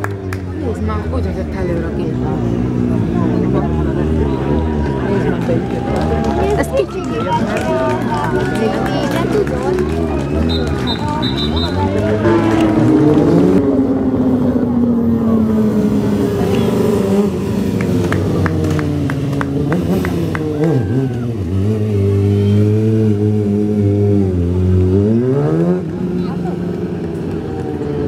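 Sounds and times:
motorcycle engine revving: 0.0 - 28.0.

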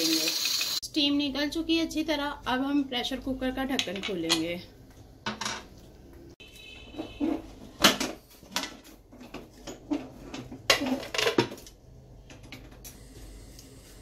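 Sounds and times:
metal lid clanking and scraping: 7.1 - 11.5.

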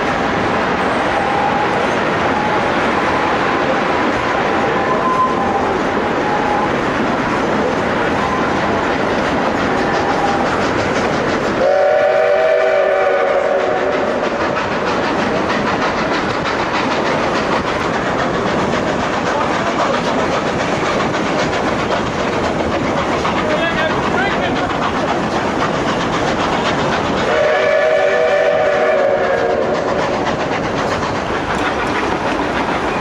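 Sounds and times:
train rumbling: 0.0 - 33.0
steam locomotive whistle: 0.7 - 3.4, 4.2 - 6.8, 8.1 - 8.9, 9.7 - 10.6, 11.6 - 14.4, 27.2 - 30.2
wheels clicking over rail joints: 3.7 - 12.4, 13.4 - 33.0.

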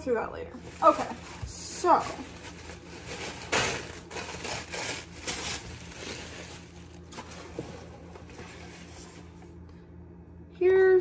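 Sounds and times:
low steady hum: 0.0 - 11.0
packaging rustling: 0.6 - 9.3.

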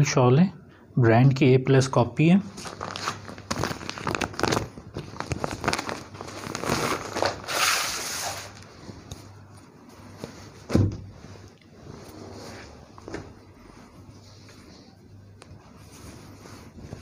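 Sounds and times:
plastic packaging crinkling: 2.5 - 8.7
thump: 10.7 - 11.1.

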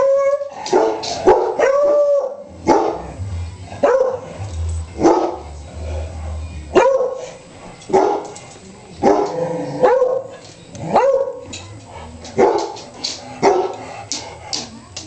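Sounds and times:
dog barking: 0.7 - 3.0, 9.0 - 10.3, 11.0 - 11.4, 13.4 - 13.8.

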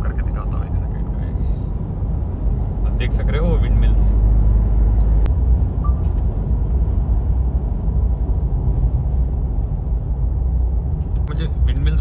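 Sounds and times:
car cabin road and engine rumble: 0.0 - 12.0.

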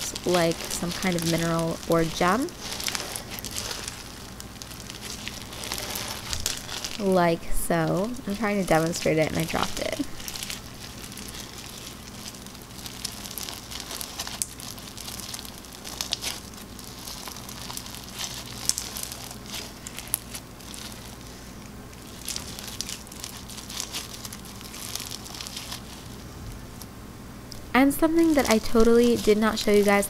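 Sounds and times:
slime crunching and popping: 0.0 - 7.0, 8.7 - 21.4, 22.0 - 26.2
faint low hum: 0.0 - 30.0.

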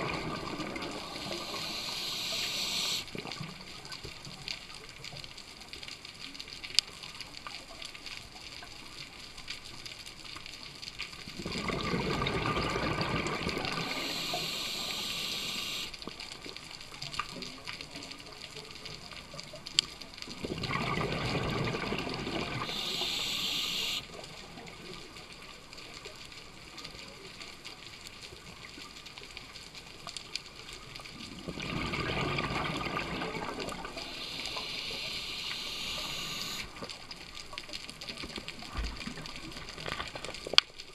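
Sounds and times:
steady underwater hiss: 0.0 - 40.9
diver exhaling bubbles: 11.4 - 15.8, 31.4 - 36.6.

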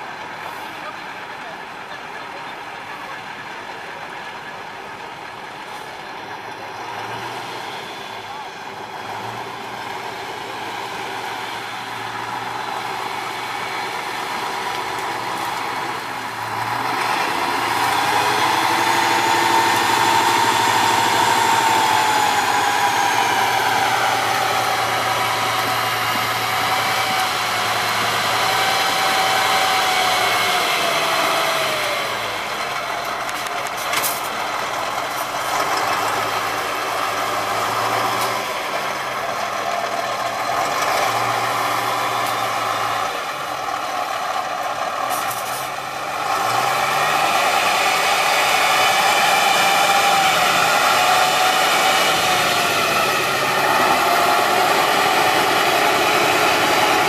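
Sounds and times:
truck diesel engine under load: 0.0 - 57.0
wavering engine whine: 6.3 - 33.7, 46.0 - 57.0.

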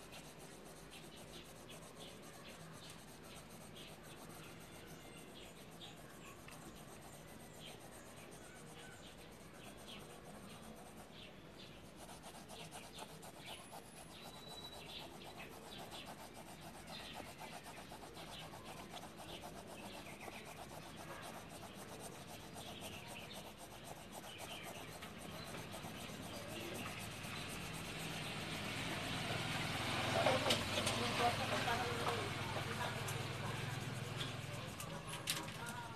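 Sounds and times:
pencil scratching on paper: 0.0 - 35.9.

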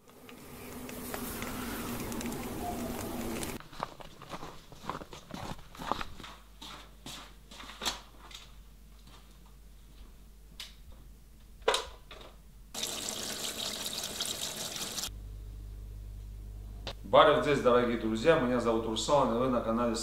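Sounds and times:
stream of running water: 12.8 - 15.1
water dripping and splashing: 12.8 - 15.1.

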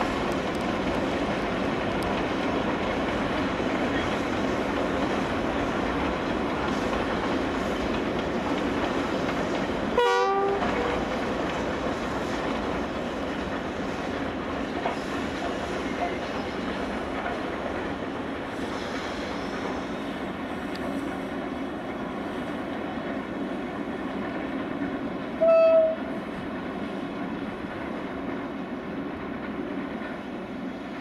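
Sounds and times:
distant steam locomotive rushing: 0.0 - 31.0
train whistle toot: 10.0 - 11.0, 25.4 - 26.1.

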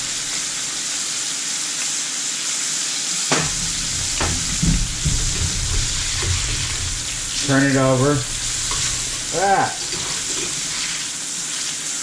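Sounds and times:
low bumps: 0.0 - 0.6, 3.3 - 11.0
fish sizzling in frying pan: 0.0 - 12.0
sharp knock: 3.3 - 10.7.

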